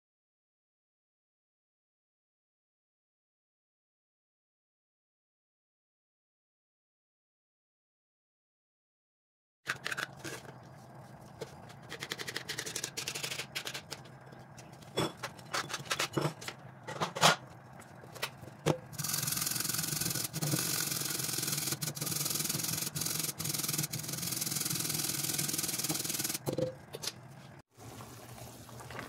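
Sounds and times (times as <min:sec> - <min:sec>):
kitchen utensils clattering: 0:11.8 - 0:19.0
carrot rasping on grater: 0:19.0 - 0:26.4.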